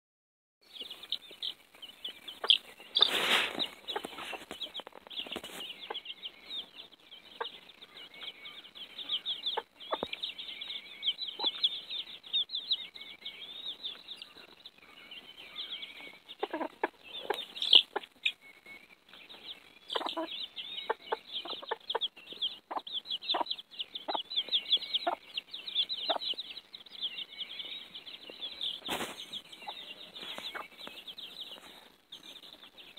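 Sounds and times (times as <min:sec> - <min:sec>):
chicks peeping: 0:00.6 - 0:32.9
rustle: 0:00.8 - 0:05.9, 0:28.6 - 0:32.3.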